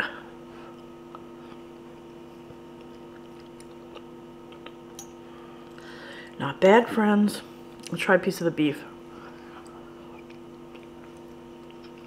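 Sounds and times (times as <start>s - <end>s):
chewing cooked carrot: 2.4s - 4.9s, 9.5s - 12.0s.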